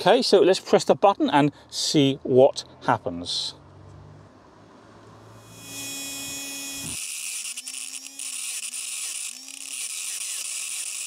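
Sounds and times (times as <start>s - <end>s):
small motor high-pitched whir: 5.2s - 11.0s.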